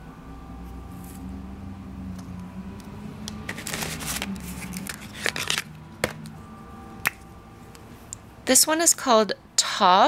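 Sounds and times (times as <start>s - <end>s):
low steady hum: 0.0s - 10.0s
tissue paper rustling: 3.5s - 5.6s.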